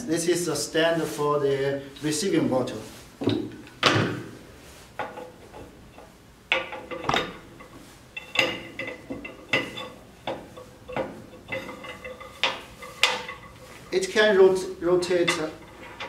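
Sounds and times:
metal parts clinking and knocking: 5.0 - 14.1, 15.0 - 16.0.

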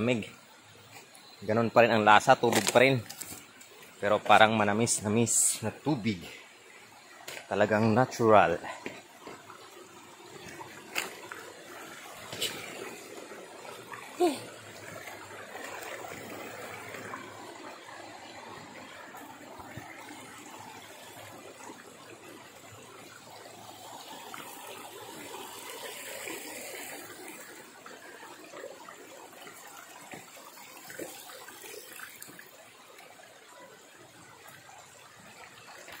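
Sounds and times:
water trickling: 0.0 - 36.0.

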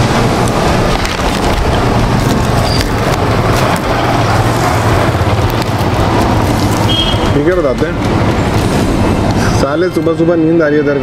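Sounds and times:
vehicle engine running: 0.0 - 9.4.

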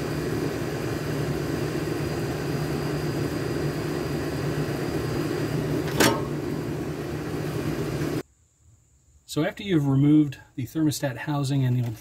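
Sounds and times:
steady mechanical drone: 0.0 - 8.2.

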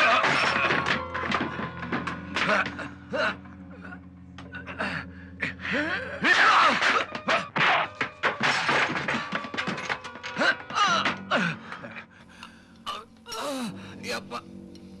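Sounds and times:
men grunting and gasping: 0.0 - 8.1, 8.8 - 14.0
background music: 0.0 - 15.0
furniture crashing: 6.3 - 11.4.

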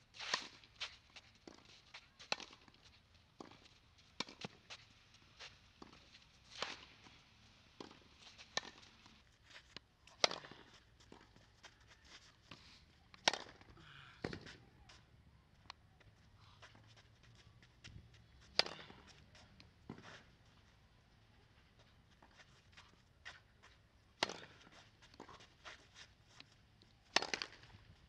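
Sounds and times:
shoes scuffing on clay: 0.2 - 7.1, 16.4 - 20.4, 21.8 - 26.6
tennis ball bouncing: 7.8 - 8.9, 27.1 - 27.7
tennis racket hitting ball: 27.1 - 27.6.

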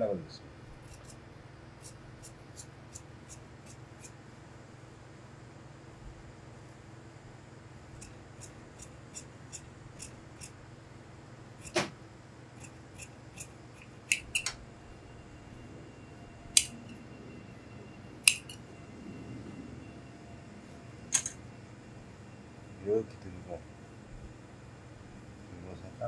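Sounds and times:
shear blades clacking: 0.8 - 1.2, 1.8 - 4.2, 8.0 - 10.6, 11.6 - 11.9, 12.6 - 14.6, 16.5 - 17.0, 18.2 - 18.6
shears snipping fabric: 0.8 - 1.2, 1.8 - 4.2, 7.9 - 10.6, 11.6 - 12.0, 12.6 - 14.6, 18.2 - 18.6.

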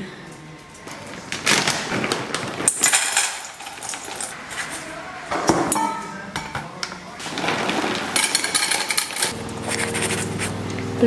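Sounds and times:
bowl and bag clattering: 0.8 - 4.4, 5.6 - 9.4
foil bag crinkling: 0.8 - 4.4, 7.2 - 8.8
kibble rattling into metal bowl: 1.4 - 4.4, 7.2 - 9.4.

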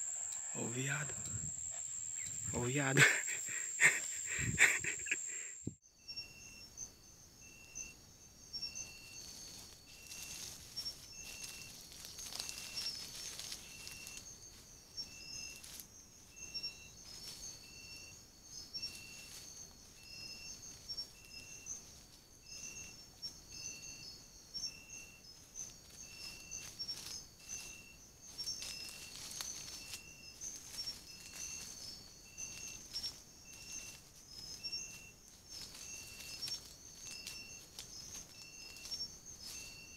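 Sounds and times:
insect high trill: 0.0 - 39.9
insect short chirp: 0.0 - 39.9
rustling in dry leaves: 8.8 - 23.6, 25.2 - 39.9.

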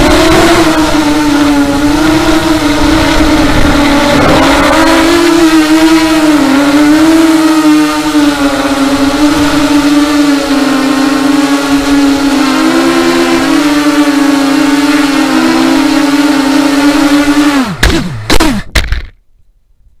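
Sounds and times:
quadcopter motors whining: 0.0 - 19.1
drone landing knocks: 17.7 - 19.2.

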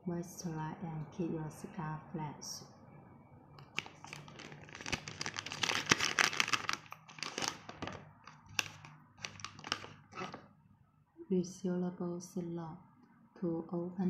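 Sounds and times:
plastic bag crinkling: 3.6 - 10.4.

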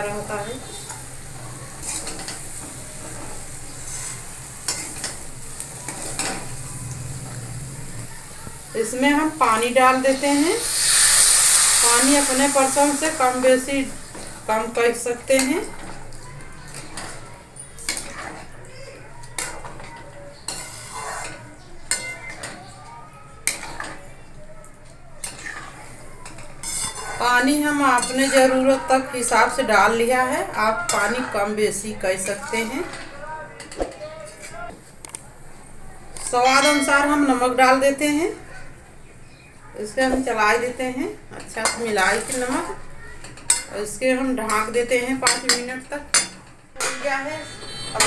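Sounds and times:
oil sizzling in a pan: 0.0 - 18.6, 19.3 - 22.4, 25.2 - 32.8
spatula scraping a pan: 0.4 - 8.0, 9.6 - 16.0, 16.7 - 18.6, 19.4 - 22.6, 23.4 - 24.0, 25.2 - 27.3, 45.3 - 48.0
ladle scraping metal pan: 1.8 - 5.2, 20.5 - 22.1, 26.6 - 27.2, 46.8 - 48.0.

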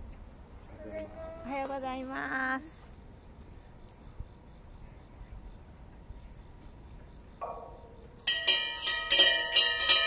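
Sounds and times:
insects chirring: 0.0 - 10.0
bell ringing rapidly: 8.3 - 10.0.

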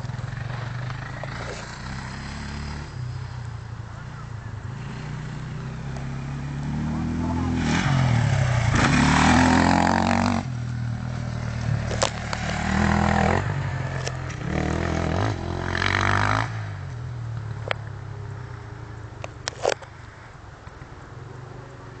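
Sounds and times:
dirt bike engine revving: 0.0 - 3.4, 4.7 - 16.8.

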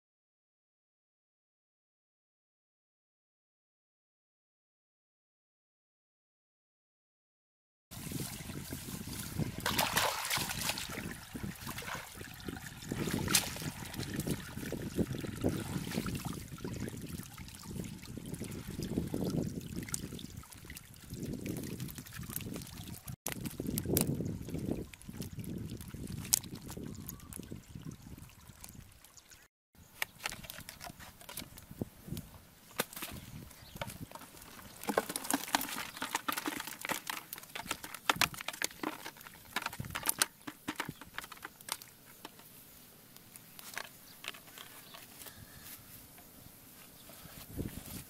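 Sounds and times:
water trickling and dripping: 8.2 - 29.5
bamboo trap knocking and scraping: 30.0 - 31.6, 32.7 - 42.5, 43.6 - 45.4.

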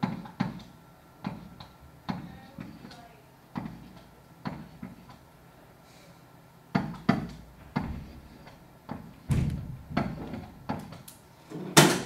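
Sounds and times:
dull knocks and bumps: 6.8 - 11.0.

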